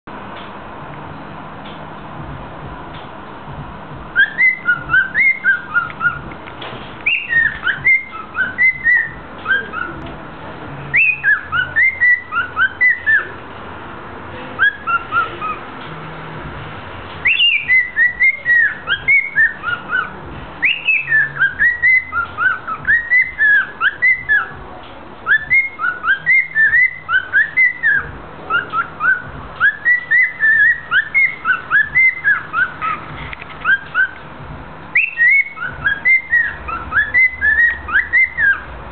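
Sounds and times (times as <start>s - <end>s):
cockatiel whistling song: 4.2s - 6.3s, 7.0s - 10.1s, 10.9s - 13.4s, 14.6s - 15.6s, 17.2s - 24.6s, 25.2s - 34.2s, 34.9s - 38.7s.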